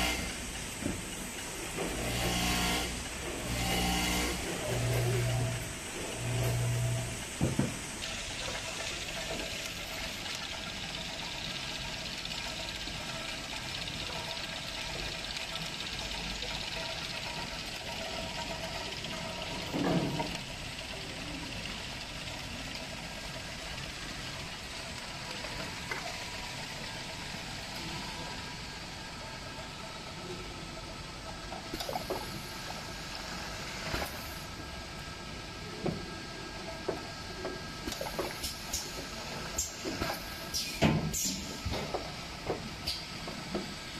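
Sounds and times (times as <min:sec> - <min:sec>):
machinery hum and whir: 0:00.0 - 0:43.9.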